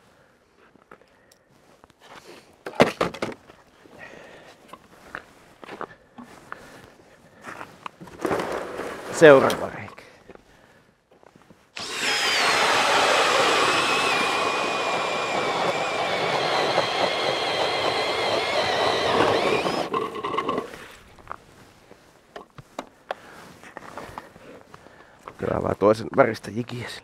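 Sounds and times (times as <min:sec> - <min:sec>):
ice auger drilling through ice: 0:11.8 - 0:20.8.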